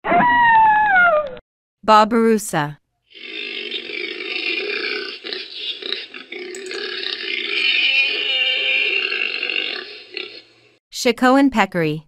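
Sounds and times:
pig-like grunting: 3.1s - 10.6s.

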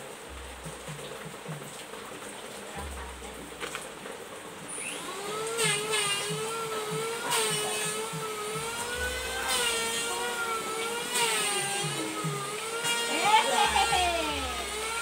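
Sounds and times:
small motor whining: 4.7s - 15.0s.

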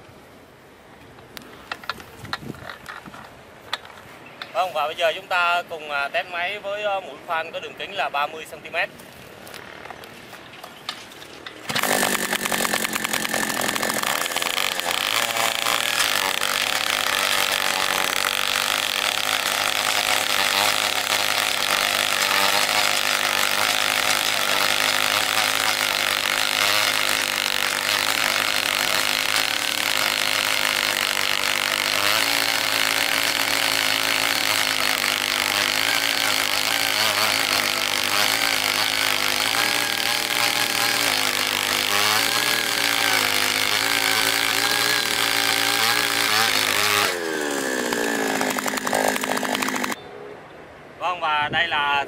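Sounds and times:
auger boring into stony ground: 11.6s - 50.0s
two-stroke engine running: 11.7s - 50.0s.

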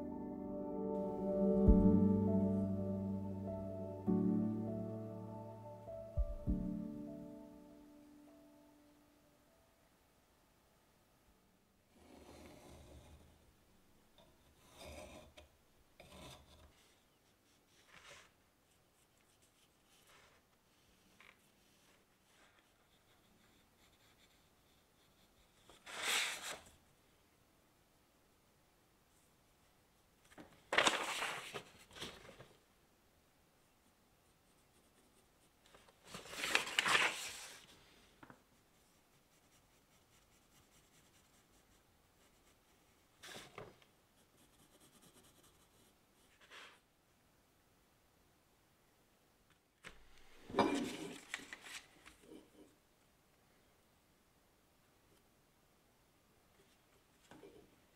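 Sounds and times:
pencil scratching on paper: 21.4s - 26.7s, 34.2s - 35.9s, 38.6s - 43.5s, 44.2s - 46.8s.

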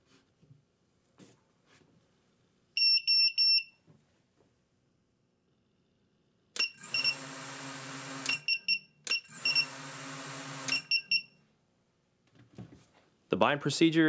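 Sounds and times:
short high beeps: 10.7s - 11.4s.

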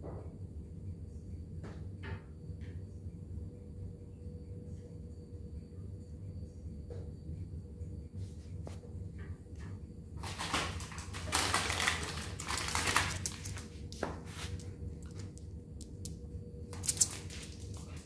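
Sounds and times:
dog claws clicking on tile: 10.9s - 18.0s
rustling: 11.2s - 15.4s.

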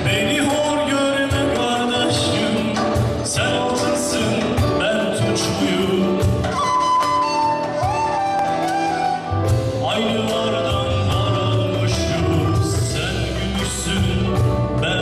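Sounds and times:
man singing into a microphone: 0.0s - 7.9s, 9.0s - 15.0s
electric guitar: 0.0s - 15.0s.

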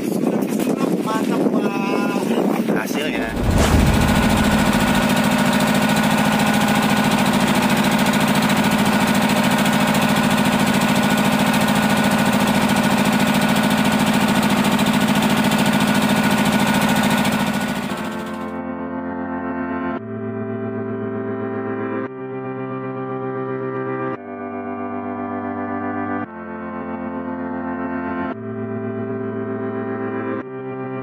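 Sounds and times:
music: 0.0s - 15.0s, 16.8s - 31.0s
boat engine droning: 3.1s - 15.5s.

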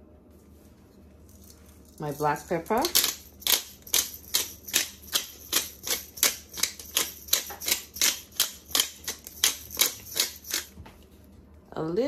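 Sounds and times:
pepper grinder ratcheting: 2.0s - 10.8s.

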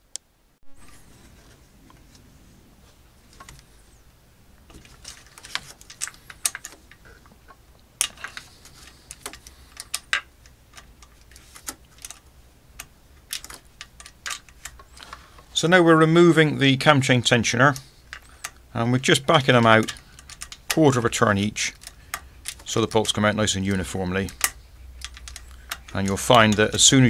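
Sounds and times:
hand tools clicking on bolts: 19.2s - 27.0s.

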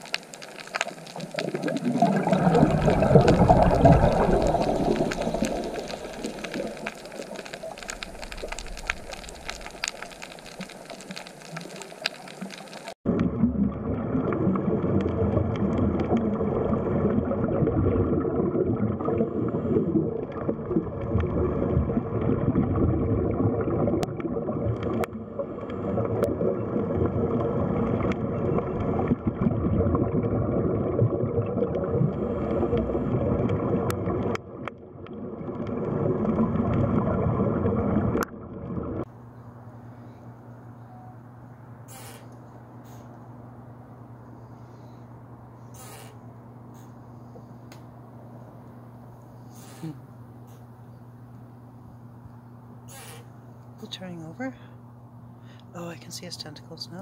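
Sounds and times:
underwater gurgling with clicks: 0.0s - 39.1s
muffled underwater rumble: 0.0s - 55.6s
faint hum: 0.0s - 57.0s.

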